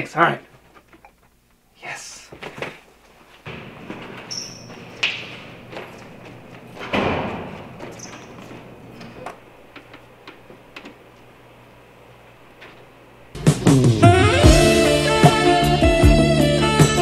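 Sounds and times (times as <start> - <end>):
light footsteps: 2.3 - 13.3
glass door opening: 3.4 - 13.3.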